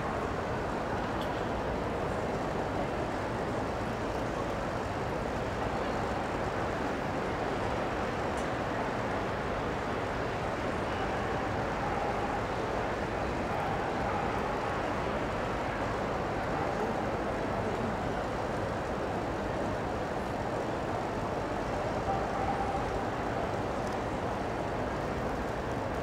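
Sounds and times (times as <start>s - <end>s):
crowd murmur: 9.7s - 26.0s.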